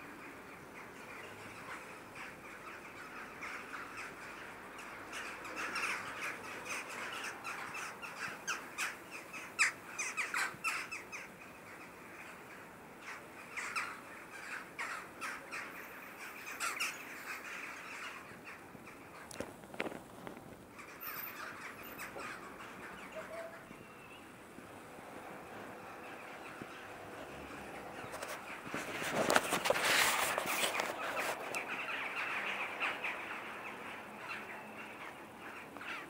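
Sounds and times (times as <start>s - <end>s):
faint bird chatter: 0.0s - 36.0s.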